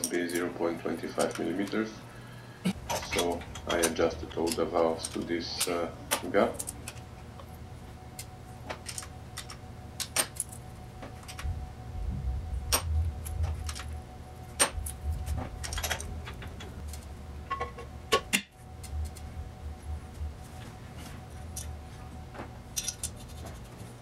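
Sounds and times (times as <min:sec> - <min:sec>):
hand tools clicking on metal: 0:02.9 - 0:07.0.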